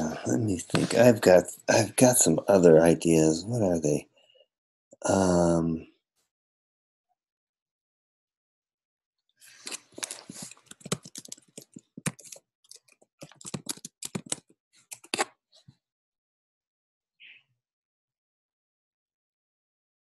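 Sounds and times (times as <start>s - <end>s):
typing on computer keyboard: 10.0s - 15.2s.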